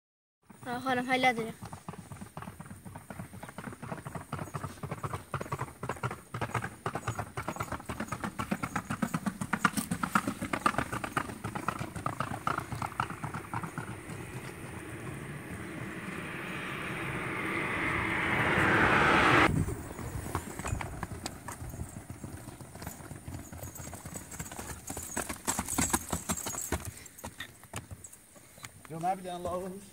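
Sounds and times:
hooves clip-clopping on asphalt: 0.4s - 15.0s, 20.0s - 29.9s
rushing noise: 11.3s - 21.2s.

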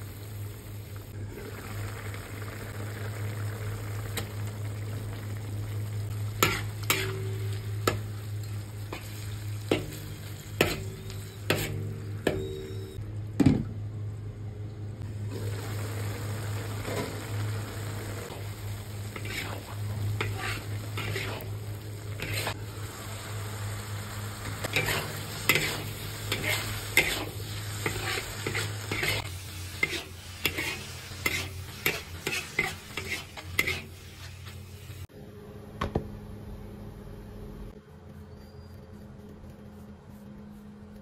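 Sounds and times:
meat sizzling in a wok: 0.0s - 12.1s, 15.2s - 35.1s
spatula scraping a pan: 6.4s - 12.0s, 19.0s - 22.6s, 24.5s - 34.6s.

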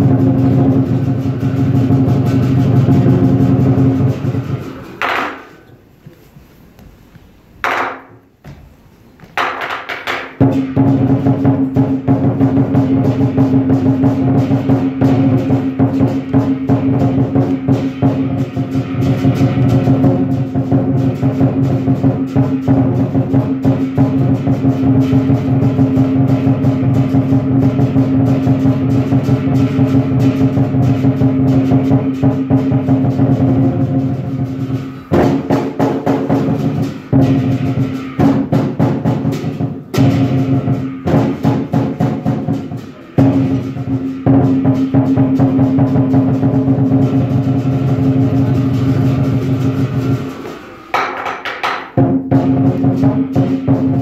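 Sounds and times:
large drum beaten fast: 0.0s - 5.6s, 9.4s - 54.0s
gong: 10.4s - 50.9s
ringing cymbals: 10.5s - 51.0s.

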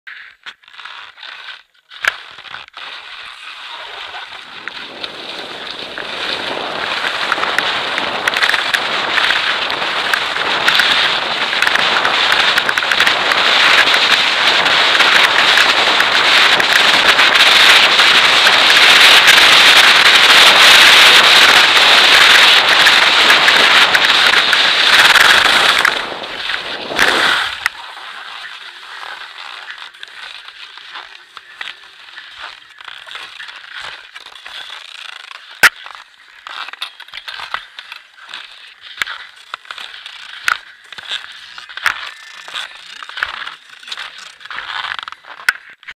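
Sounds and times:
ski edges scraping: 0.1s - 45.9s
skis crunching on soft snow: 0.1s - 45.9s
skis rushing over packed snow: 0.1s - 45.9s
wind on microphone: 3.8s - 29.3s.

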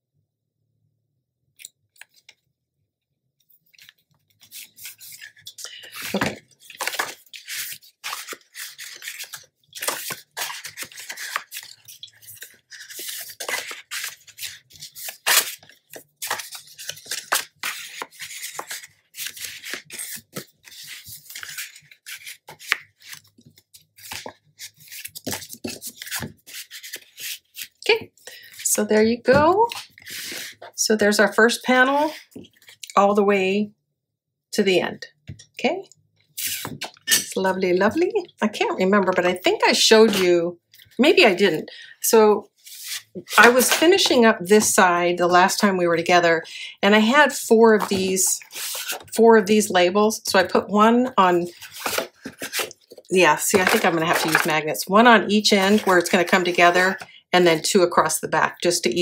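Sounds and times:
paper rustling and sliding: 3.8s - 27.8s, 42.6s - 44.2s, 47.8s - 49.1s, 51.3s - 54.5s.

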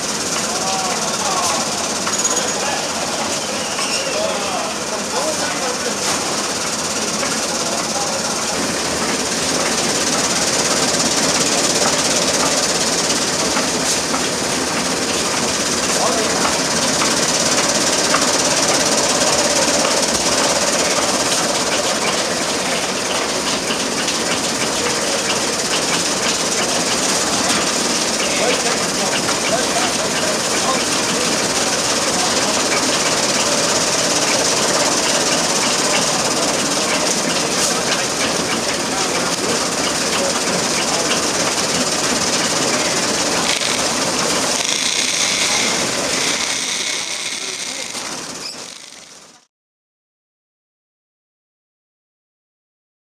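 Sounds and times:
chaff cutter mechanical clatter: 6.0s - 49.4s
fast rattling ticks: 6.6s - 49.2s
chaff cutter clattering: 42.4s - 49.1s.

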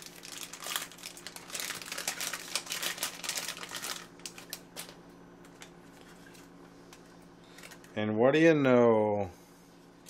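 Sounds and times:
foil pack crinkling as torn open: 0.0s - 5.0s.

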